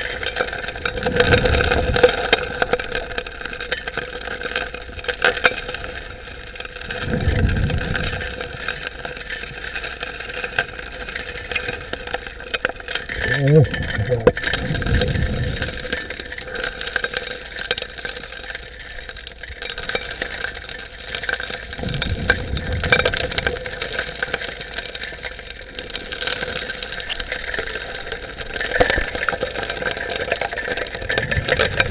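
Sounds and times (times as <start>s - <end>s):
underwater dredge engine drone: 5.6s - 19.5s.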